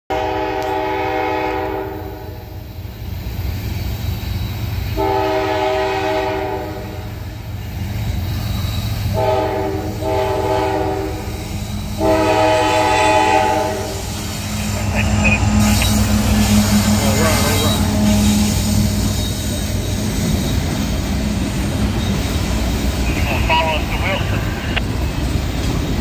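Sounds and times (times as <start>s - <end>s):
locomotive horn blasts: 0.1s - 2.6s, 5.0s - 7.2s, 9.1s - 19.4s
low rumble of oncoming train: 0.1s - 26.0s.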